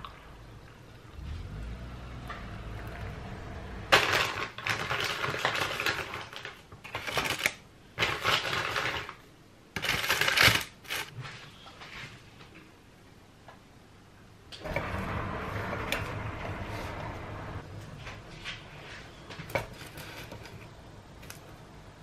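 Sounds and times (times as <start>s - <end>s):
baking paper crinkling: 3.9s - 9.2s, 9.8s - 12.1s.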